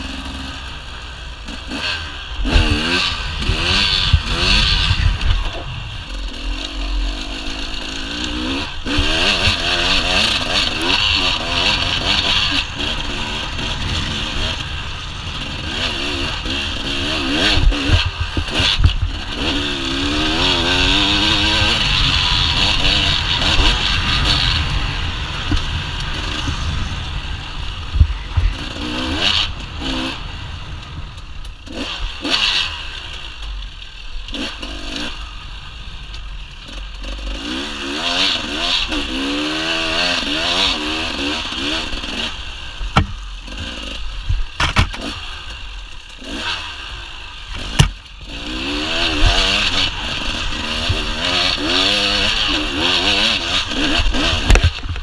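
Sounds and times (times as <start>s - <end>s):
two-stroke motorcycle engine revving: 0.0s - 55.0s
wind rushing: 2.4s - 9.8s, 11.3s - 31.1s
motorcycle knocking and clattering: 42.8s - 46.3s, 47.5s - 48.4s.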